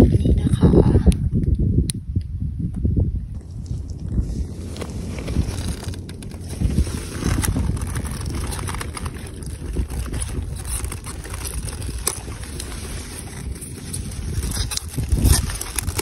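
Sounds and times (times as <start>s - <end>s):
wind rumble on microphone: 0.0s - 16.0s
leaves rustling and brushing: 3.4s - 16.0s.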